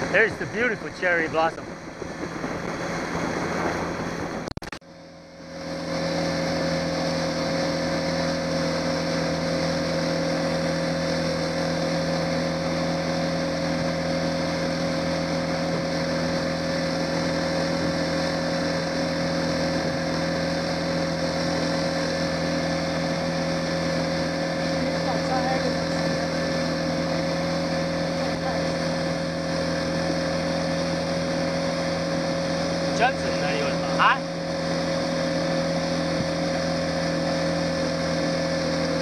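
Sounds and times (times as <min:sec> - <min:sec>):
outboard motor running: 0:00.0 - 0:39.0
wind and water rushing: 0:00.0 - 0:39.0.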